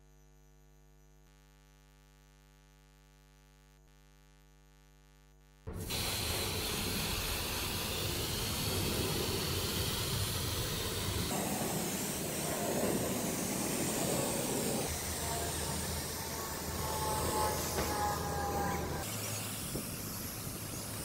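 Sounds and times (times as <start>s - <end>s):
spray paint can hissing: 5.7s - 21.0s.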